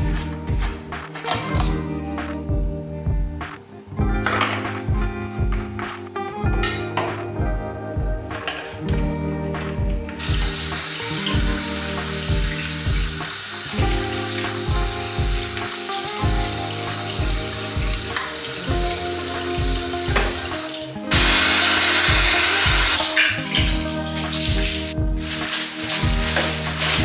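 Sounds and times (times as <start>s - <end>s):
background music with steady beat: 0.0s - 27.0s
tap water running into sink: 10.2s - 27.0s.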